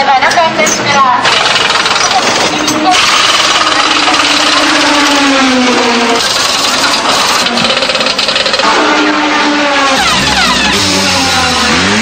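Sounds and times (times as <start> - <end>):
racing car engines revving: 0.2 - 12.0
pneumatic wheel gun rattling: 0.3 - 8.7.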